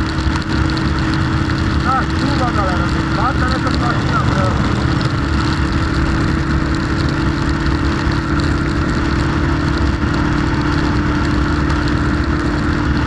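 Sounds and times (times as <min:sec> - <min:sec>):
motorcycle engine cruising: 0:00.0 - 0:13.0
wet road noise: 0:00.0 - 0:13.0
wind rushing: 0:02.8 - 0:07.6.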